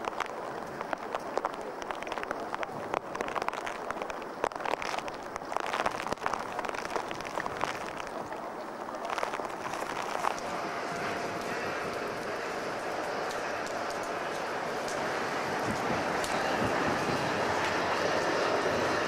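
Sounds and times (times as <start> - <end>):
drips and taps: 0.0 - 10.5
rain hiss: 0.0 - 19.0.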